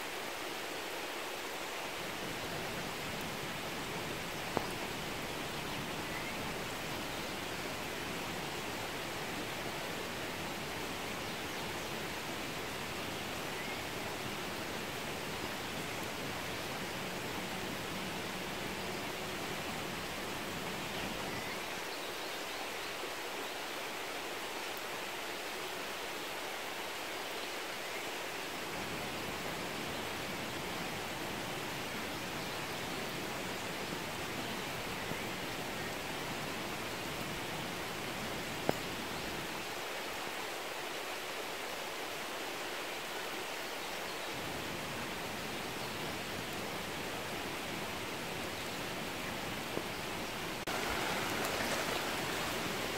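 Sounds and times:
rain hissing: 0:46.1 - 0:52.9.

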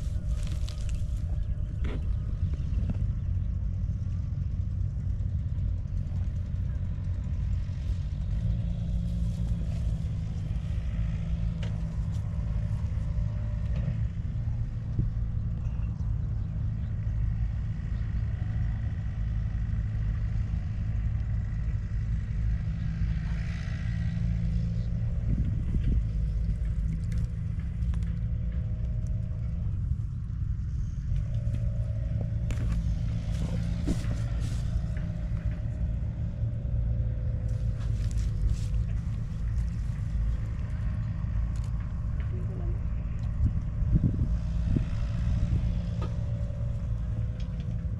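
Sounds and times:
engine droning: 0:00.0 - 0:47.9.

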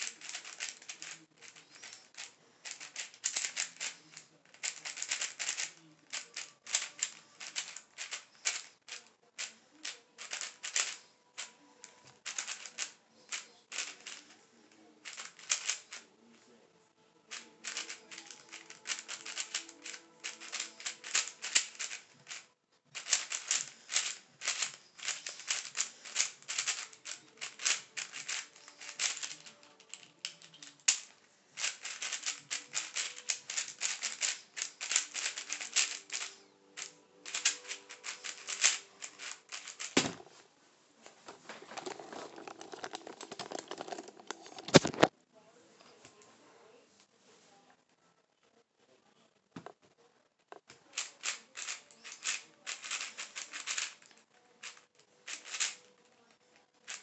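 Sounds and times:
puzzle cube layers clicking: 0:00.0 - 0:01.9, 0:23.0 - 0:36.3
rustling handling noise: 0:00.0 - 0:14.4, 0:17.3 - 0:45.1, 0:50.5 - 0:56.0.

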